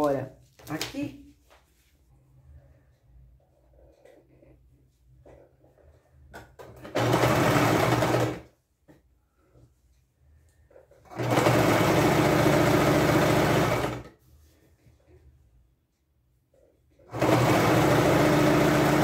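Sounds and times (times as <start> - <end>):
electric sewing machine stitching: 6.8 - 8.5, 11.0 - 14.1, 17.1 - 19.0.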